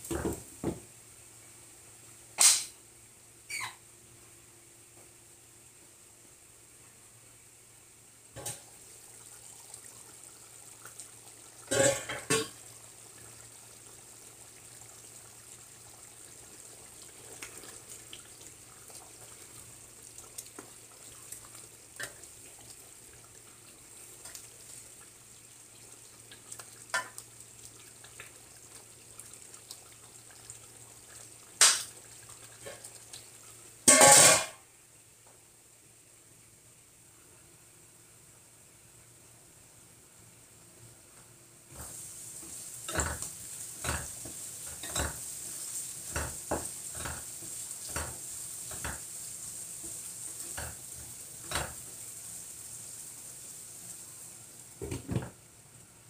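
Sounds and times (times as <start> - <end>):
metal pot lid clattering: 11.7 - 12.6, 33.9 - 34.6.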